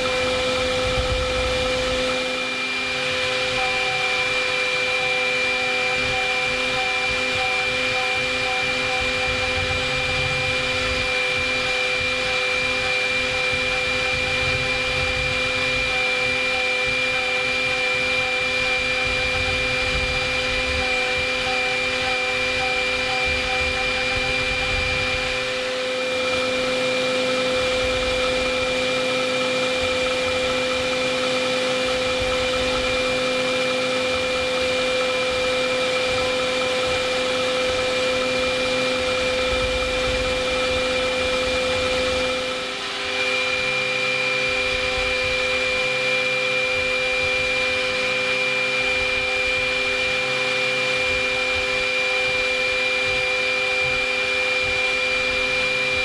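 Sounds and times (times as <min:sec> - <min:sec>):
milling machine cutting steel: 0:00.0 - 0:56.0.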